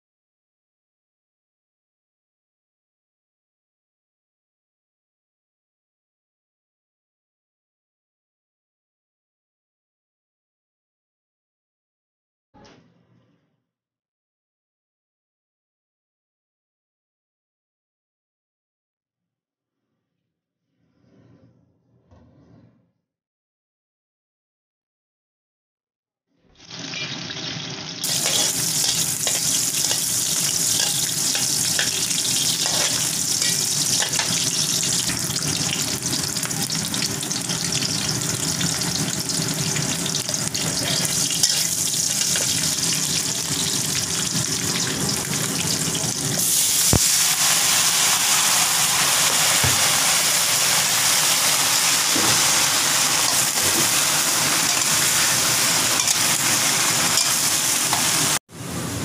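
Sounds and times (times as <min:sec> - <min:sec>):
garlic sizzling in hot oil: 0:26.6 - 0:58.4
metal spatula stirring in wok: 0:28.0 - 0:35.2, 0:40.4 - 0:42.8, 0:53.2 - 0:58.2.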